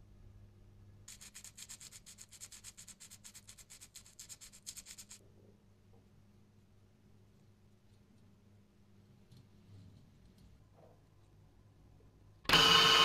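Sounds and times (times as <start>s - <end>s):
sandpaper rubbing on wire: 1.1s - 5.2s.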